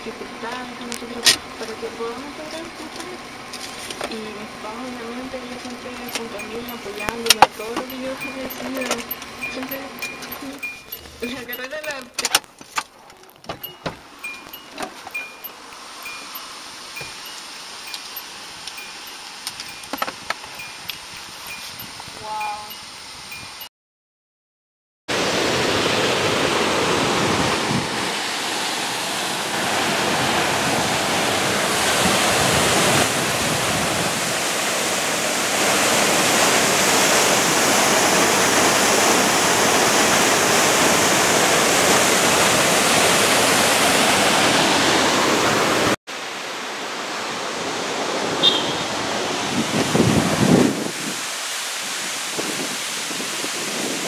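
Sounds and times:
high chirp: 6.1s - 12.2s, 13.6s - 20.0s, 20.6s - 23.7s
waterfall rushing: 25.1s - 54.0s.

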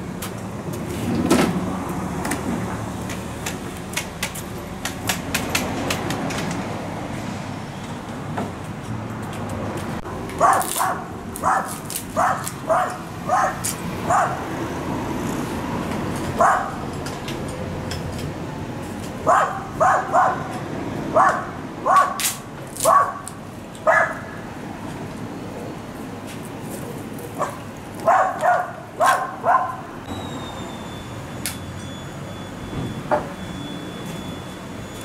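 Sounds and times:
dog barking: 10.4s - 14.4s, 16.4s - 16.8s, 19.3s - 20.5s, 21.2s - 22.2s, 22.8s - 23.2s, 23.9s - 24.2s, 27.4s - 29.8s.

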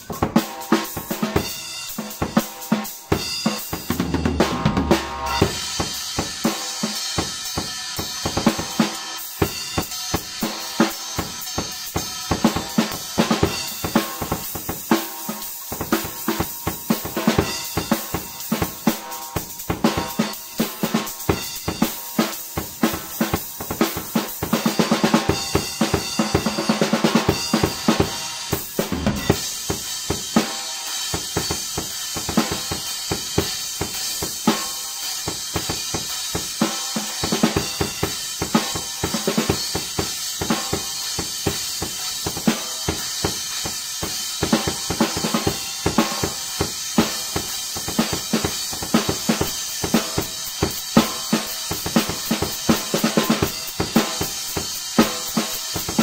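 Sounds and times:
drum kit steady beat: 0.0s - 56.0s.

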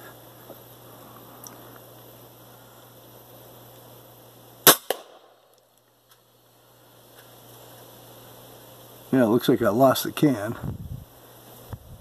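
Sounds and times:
air rifle shot crack: 4.6s - 5.4s.

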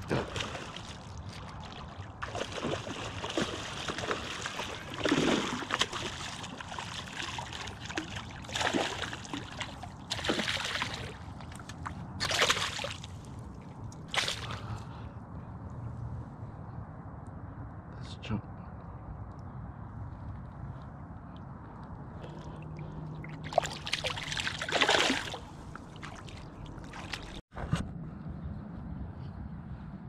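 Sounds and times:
water sloshing and splashing: 0.0s - 14.8s, 22.1s - 27.5s
outdoor background noise: 0.0s - 30.0s.

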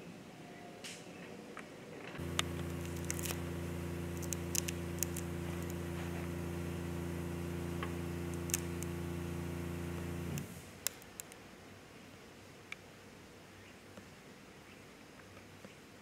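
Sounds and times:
low mechanical hum: 0.0s - 12.5s
sharp clicks: 2.2s - 11.4s.

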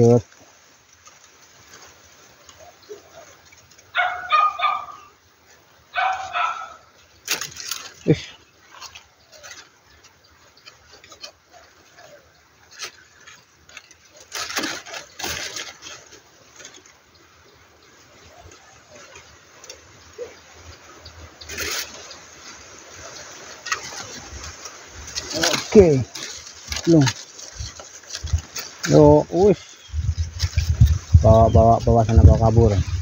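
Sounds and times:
rustling: 0.0s - 33.0s
dog yelping: 3.9s - 5.1s, 5.9s - 6.8s.

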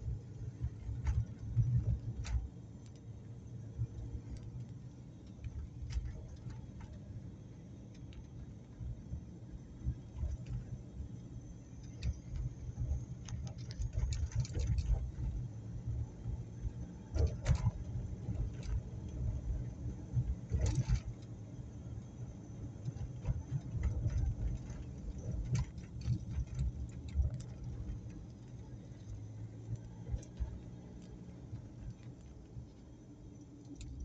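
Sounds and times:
road and engine rumble: 0.0s - 34.0s
light clicks and rattles: 11.8s - 15.3s, 20.5s - 21.3s, 22.8s - 33.0s, 33.6s - 34.0s.

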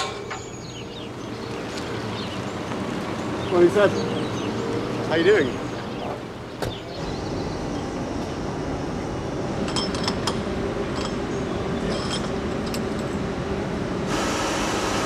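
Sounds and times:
machinery hum: 0.0s - 15.0s
light metallic clinks: 9.6s - 13.2s.

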